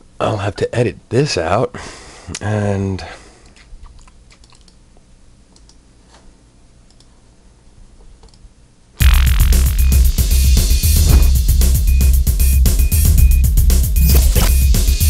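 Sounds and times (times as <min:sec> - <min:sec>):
keyboard and mouse clicks: 0:03.5 - 0:04.8
loud music: 0:09.0 - 0:15.0.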